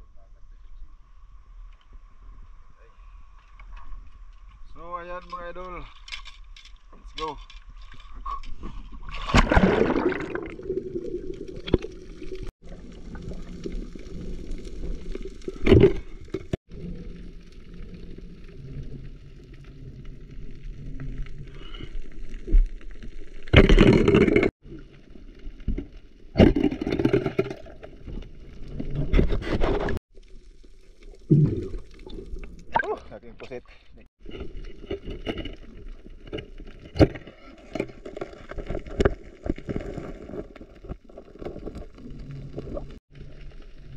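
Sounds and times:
splash into water: 9.1s - 11.8s
muffled underwater rush: 9.3s - 22.5s.

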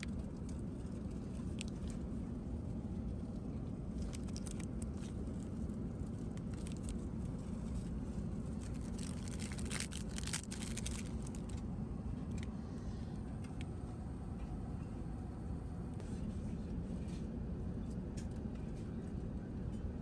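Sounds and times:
aircraft cabin drone: 0.0s - 20.0s
plastic wrapping crinkling: 4.0s - 5.5s, 8.5s - 11.6s.

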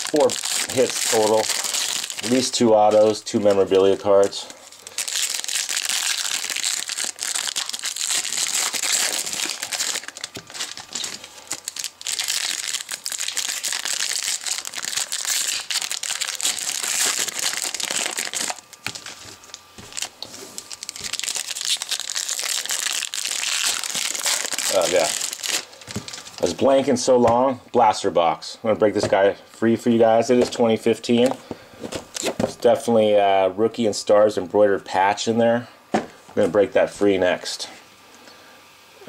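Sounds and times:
foil wrapper crinkling: 0.0s - 26.8s.

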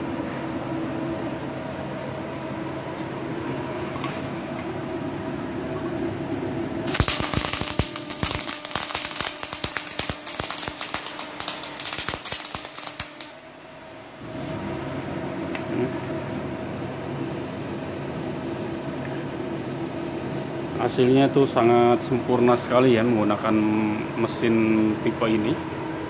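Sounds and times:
welding machine hum: 6.8s - 14.8s
welding arc crackling: 6.9s - 13.4s.

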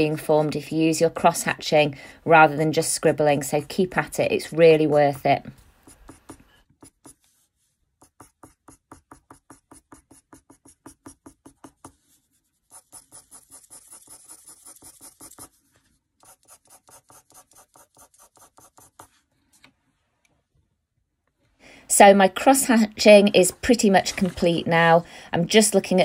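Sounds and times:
pencil scratching on paper: 4.5s - 19.3s.

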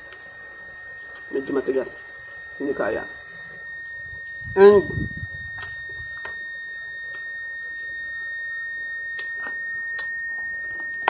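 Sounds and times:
high-pitched whine: 0.0s - 11.0s.

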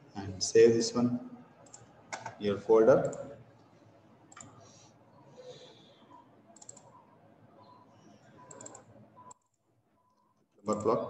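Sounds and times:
computer mouse clicks: 1.6s - 2.4s, 4.3s - 4.8s, 6.0s - 9.6s, 10.7s - 11.0s.

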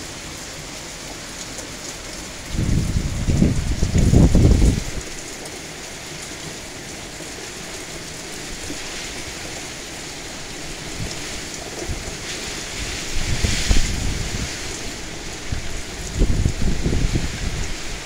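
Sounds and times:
heavy rain: 0.0s - 18.0s
wind gusts buffeting microphone: 2.4s - 5.3s, 8.5s - 18.0s.

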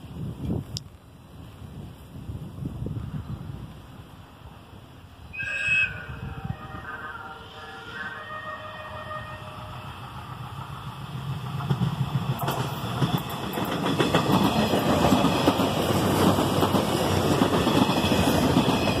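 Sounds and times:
train rumbling past: 1.4s - 19.0s
wheels clicking over rail joints: 9.6s - 19.0s.

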